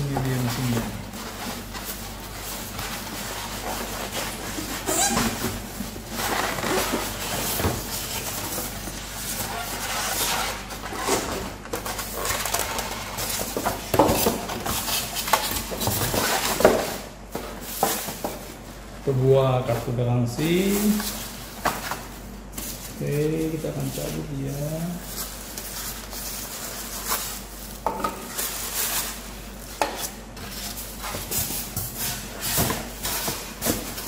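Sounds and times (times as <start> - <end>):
polystyrene foam rubbing: 0.0 - 11.2, 19.8 - 34.0
plastic wrap crinkling: 0.0 - 34.0.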